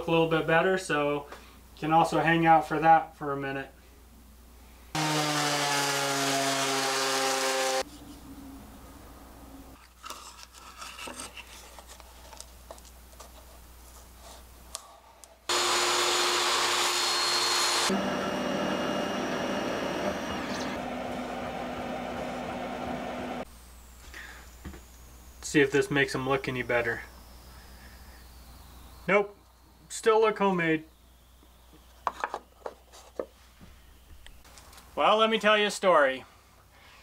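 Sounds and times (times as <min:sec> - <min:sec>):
loud power tool: 0:05.0 - 0:07.8, 0:15.5 - 0:23.4
thickness planer running: 0:05.0 - 0:07.8, 0:15.5 - 0:23.4
handling and rubbing: 0:07.8 - 0:08.4, 0:09.8 - 0:14.7, 0:32.0 - 0:33.8.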